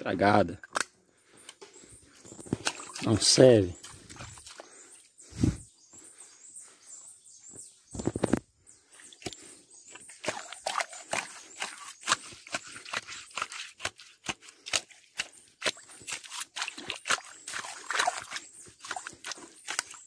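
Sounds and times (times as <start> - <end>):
wet mud squelches: 0.6 - 5.3, 9.0 - 20.0.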